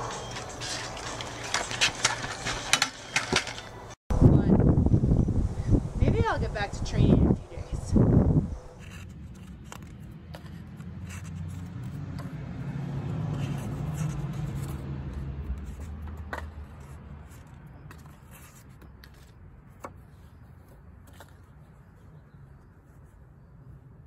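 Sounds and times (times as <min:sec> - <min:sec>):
paper cards clicking and rustling: 0:00.0 - 0:03.8, 0:08.8 - 0:12.4
passing vehicle engine rumble: 0:09.3 - 0:18.2.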